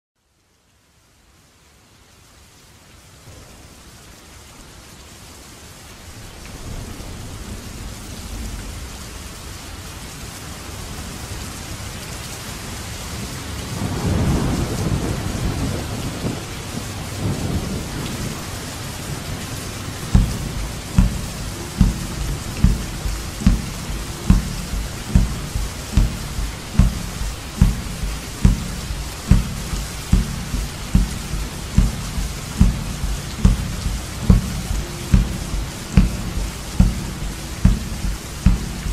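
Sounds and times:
heavy rain: 0.2s - 38.9s
rolling thunder rumble: 13.7s - 38.9s
deep drum beat: 19.9s - 38.9s.

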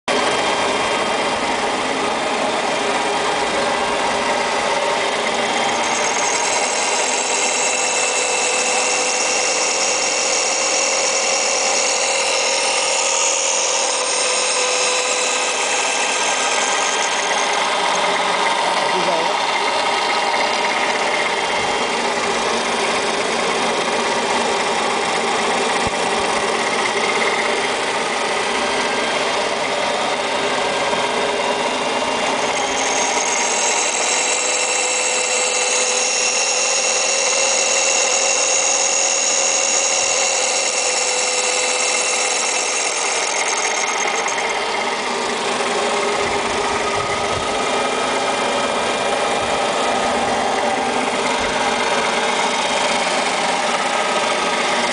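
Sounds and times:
high-pitched grinding: 0.1s - 54.9s
machine humming: 0.1s - 54.9s.

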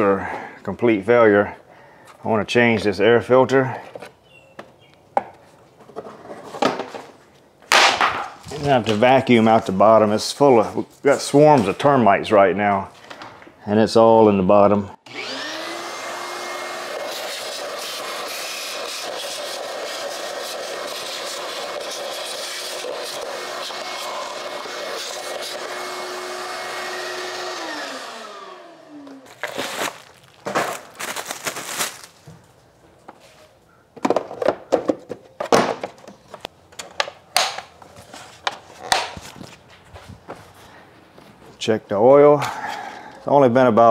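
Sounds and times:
vacuum cleaner running: 15.0s - 29.6s.

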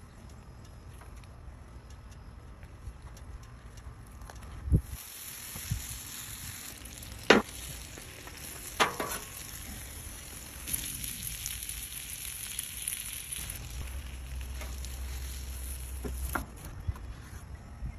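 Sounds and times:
sandwich sizzling on griddle: 4.8s - 16.7s.

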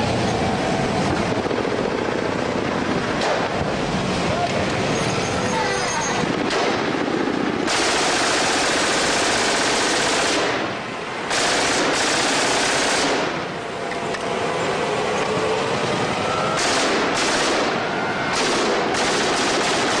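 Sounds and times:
automatic gunfire: 7.6s - 10.7s, 11.3s - 13.4s, 16.6s - 20.0s.

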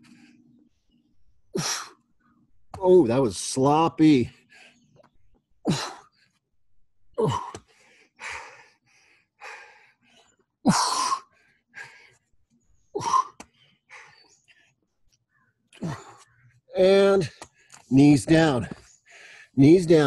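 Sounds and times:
man panting: 1.5s - 2.0s, 4.2s - 5.0s, 5.6s - 6.4s, 7.1s - 12.3s, 12.9s - 14.8s, 15.8s - 16.3s, 18.6s - 19.6s.

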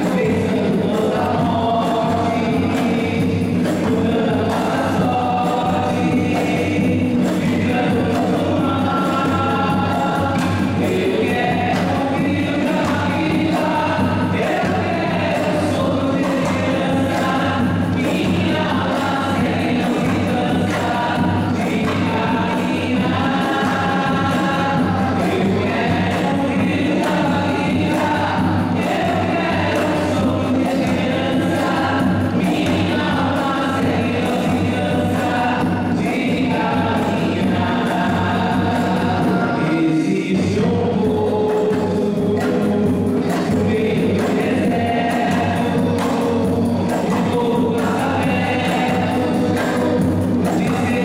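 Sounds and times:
choir singing a hymn: 0.0s - 51.0s.

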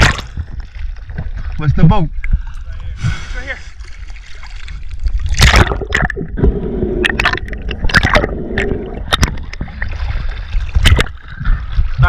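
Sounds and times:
water splashing from swim strokes: 3.6s - 6.3s.

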